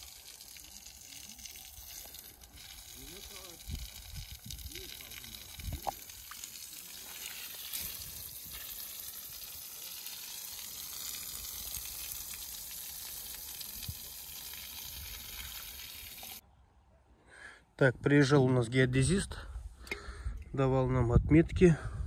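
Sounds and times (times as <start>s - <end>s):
hose spraying water on concrete: 0.0s - 16.4s.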